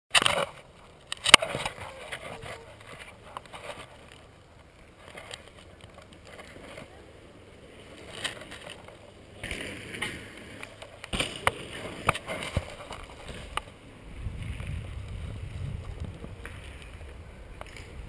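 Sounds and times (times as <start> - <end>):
wind rumble on microphone: 13.0 - 18.0.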